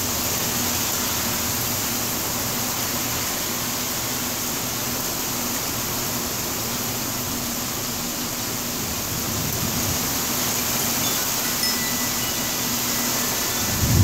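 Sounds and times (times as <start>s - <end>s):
heavy rain pouring: 0.0s - 14.0s
thunder rumbling: 13.6s - 14.0s.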